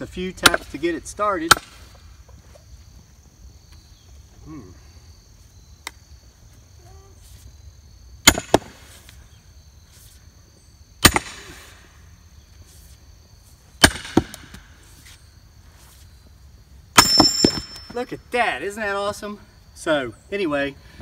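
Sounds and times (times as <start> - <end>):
sledgehammer striking steel maul: 8.2 - 8.7, 11.0 - 11.5, 13.8 - 14.4, 17.0 - 17.9.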